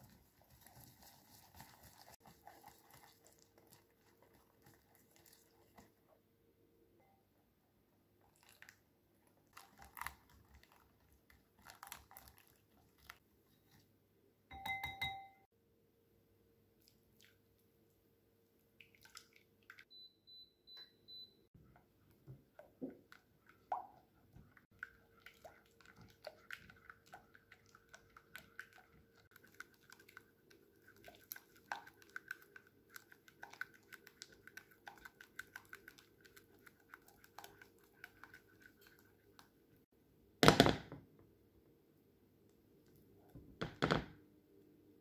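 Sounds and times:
spatula stirring custard: 0.0 - 6.0, 24.3 - 39.9.

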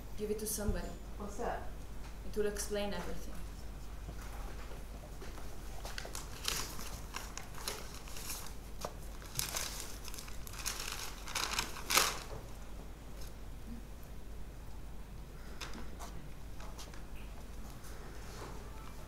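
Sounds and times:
paper crinkling and rustling: 4.2 - 12.6.

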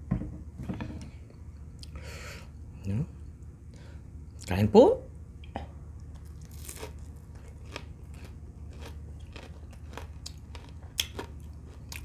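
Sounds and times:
chewing crispy chicken: 6.0 - 12.0.

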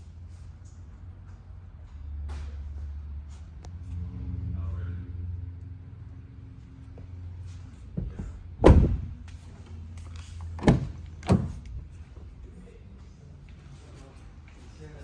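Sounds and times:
car door shutting with a thunk: 8.0 - 9.1
car door handle unlatching: 10.6 - 11.7.

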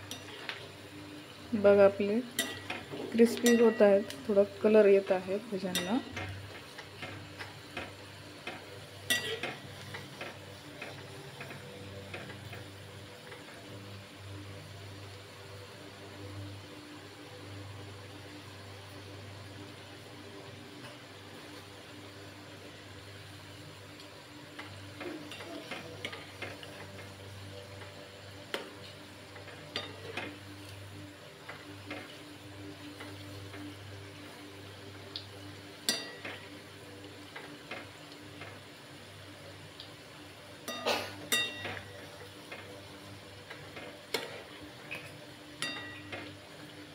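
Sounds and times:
food sizzling in hot oil: 0.0 - 46.9
ladle clinking against pan: 40.7 - 41.9.

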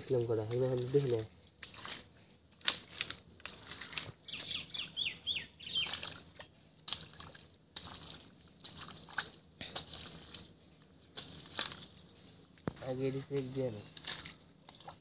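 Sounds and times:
bird chirping: 4.2 - 6.2
hands splashing in water: 5.7 - 10.5.

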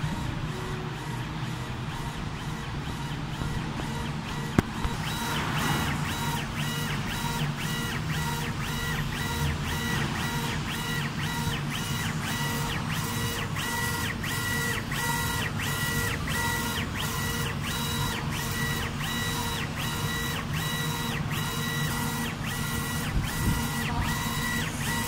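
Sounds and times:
steady low hum: 0.0 - 9.4
stepper motors whining: 0.0 - 25.0.

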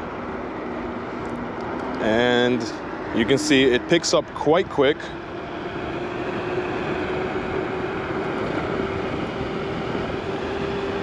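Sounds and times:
wind rushing over microphone: 4.6 - 11.0.

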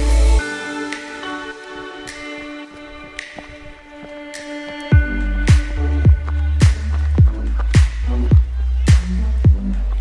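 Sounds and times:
electronic music: 0.0 - 10.0
kick drum beat: 4.9 - 9.7.

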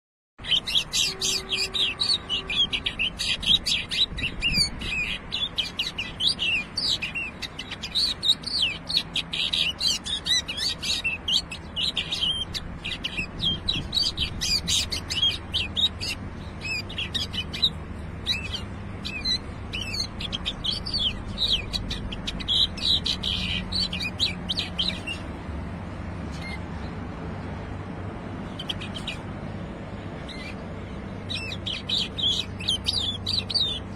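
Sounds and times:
bird singing chirpy warbling song: 0.4 - 33.9.

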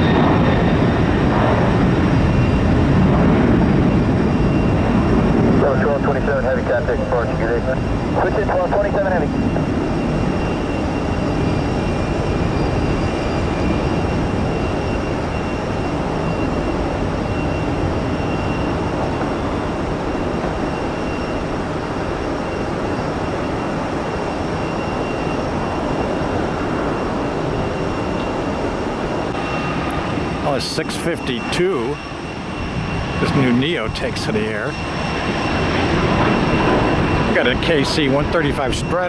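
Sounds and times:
jet engines roaring: 0.0 - 39.0.

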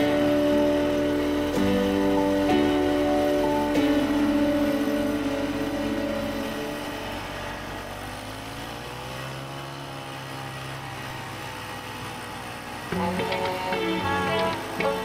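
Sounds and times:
music: 0.0 - 7.2, 12.9 - 15.0
snowmobile engine passing by: 0.0 - 15.0.

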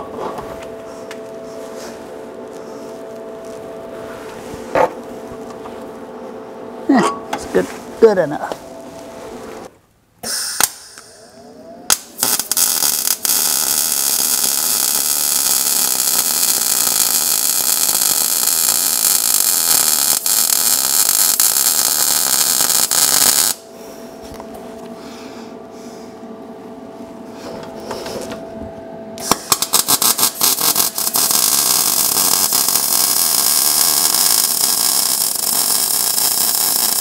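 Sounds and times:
steady hum: 0.0 - 37.0
welder arc running: 10.6 - 24.8, 29.2 - 37.0.

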